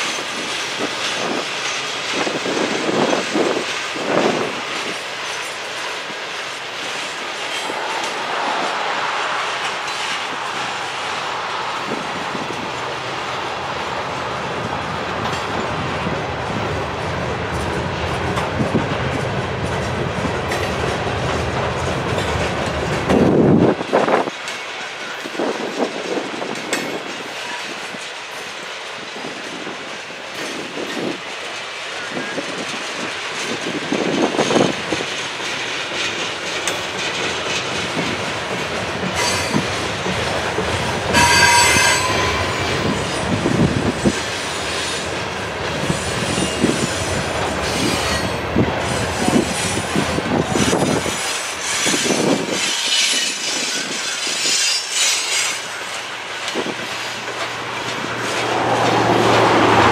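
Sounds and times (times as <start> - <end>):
freight train wheels rumbling: 0.0 - 59.9
wheels clicking over rail joints: 17.4 - 59.9
high wheel squeal: 41.2 - 45.1, 45.9 - 56.1.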